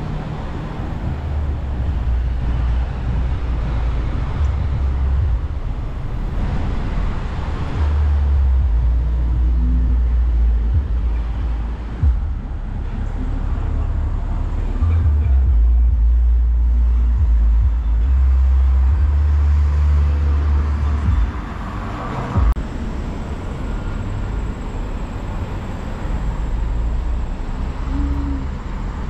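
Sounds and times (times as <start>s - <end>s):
cars passing: 0.0s - 29.0s
heavy low rumble: 0.0s - 29.0s.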